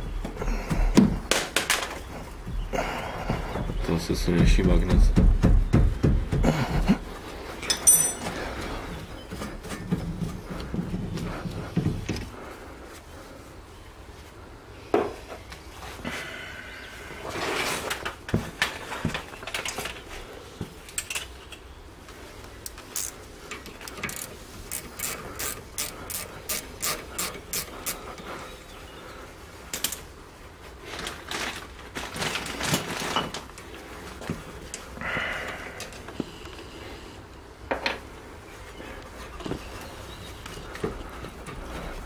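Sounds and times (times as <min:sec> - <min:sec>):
ratchet wrench clicking: 0:24.0 - 0:28.0.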